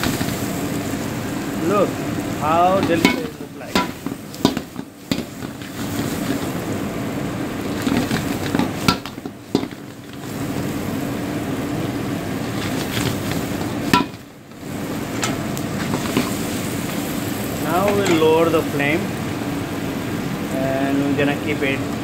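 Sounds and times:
meat sizzling in a wok: 0.0s - 22.0s
utensil knocking metal pan: 2.8s - 5.6s, 8.5s - 9.8s, 13.9s - 14.2s.

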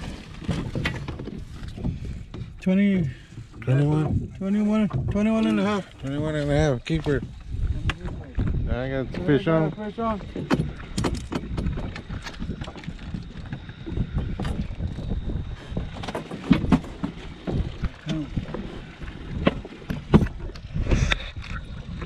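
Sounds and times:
water splashing: 0.0s - 2.3s, 3.2s - 22.0s
knocks and clicks: 10.3s - 13.6s.

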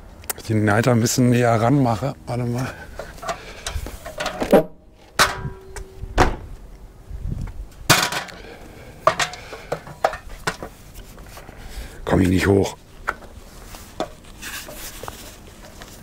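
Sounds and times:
ladder knocking and clattering: 3.7s - 6.5s, 7.9s - 8.4s, 9.1s - 10.8s.

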